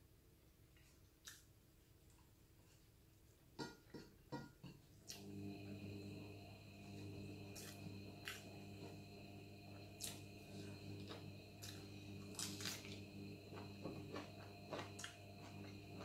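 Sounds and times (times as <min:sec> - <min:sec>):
faint steady hum: 0:00.0 - 0:16.0
person chewing crunchy food: 0:07.4 - 0:09.2, 0:09.9 - 0:16.0.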